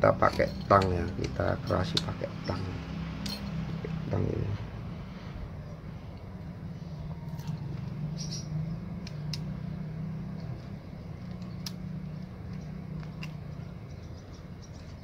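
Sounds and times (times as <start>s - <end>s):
pliers clicking on wire: 9.0s - 9.5s, 11.2s - 13.7s.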